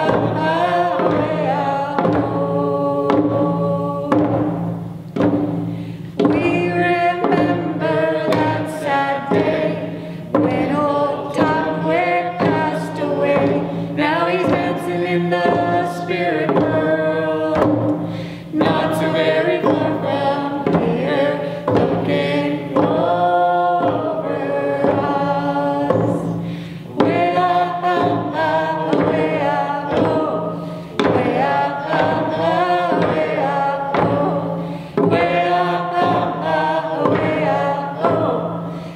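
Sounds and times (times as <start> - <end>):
group of voices singing: 0.0 - 4.8, 6.1 - 38.9
frame drums beating: 0.0 - 38.9.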